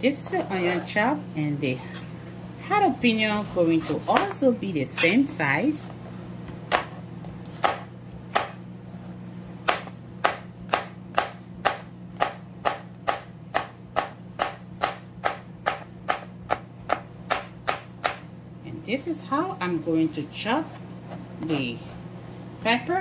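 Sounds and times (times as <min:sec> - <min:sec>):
knife chopping on plastic board: 0:03.8 - 0:04.4, 0:06.5 - 0:08.6, 0:09.6 - 0:18.2.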